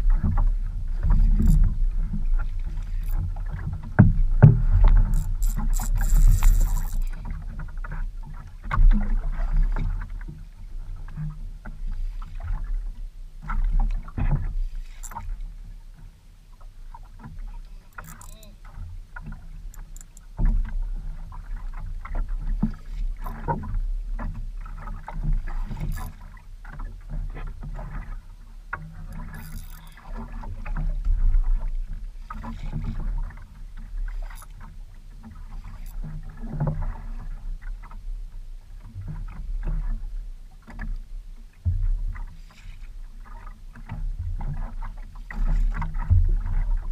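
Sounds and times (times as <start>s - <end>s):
knocks and splashes: 0.0s - 10.4s, 43.2s - 46.9s
wind rumble on microphone: 0.0s - 18.0s, 30.0s - 46.9s
water slapping against boat hull: 0.0s - 38.0s, 38.8s - 46.9s.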